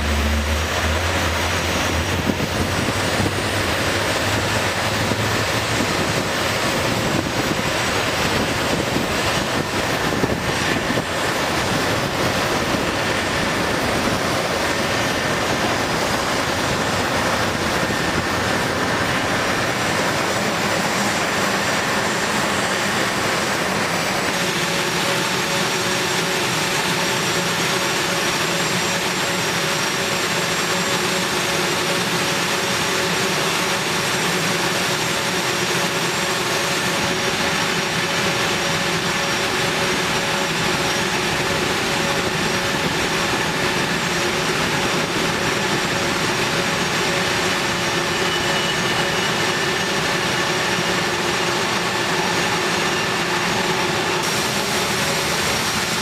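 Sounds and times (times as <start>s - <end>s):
jet engines roaring and whining: 0.0s - 56.0s.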